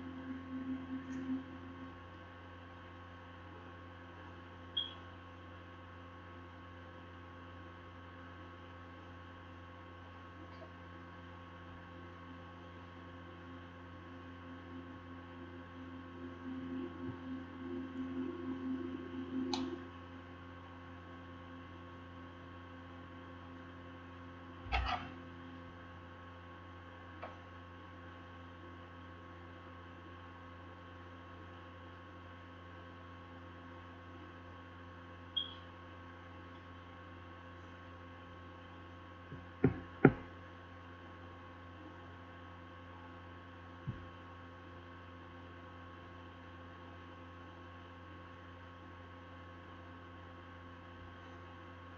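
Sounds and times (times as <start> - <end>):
electrical mains hum: 0.0 - 51.9
knocks and taps on desk: 39.4 - 40.3.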